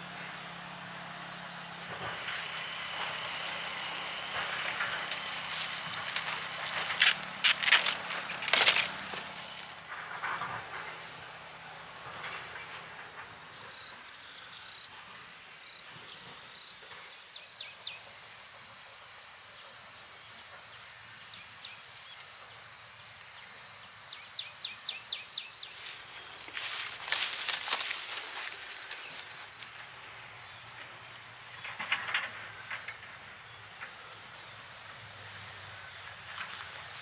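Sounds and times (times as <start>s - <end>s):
steady low hiss: 0.0s - 37.0s
rustles and knocks: 25.9s - 37.0s.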